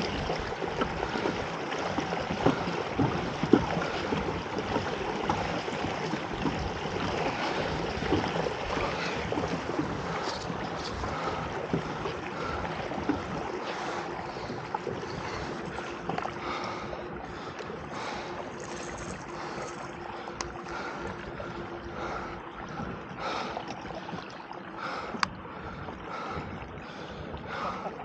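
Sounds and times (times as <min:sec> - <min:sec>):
water lapping against hull: 0:00.0 - 0:28.0
faint steady hum: 0:03.7 - 0:28.0.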